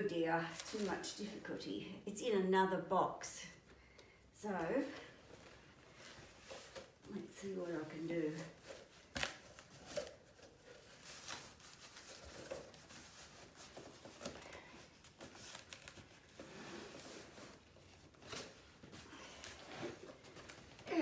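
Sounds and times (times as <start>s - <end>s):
cardboard box scraping and sliding: 16.4s - 17.6s.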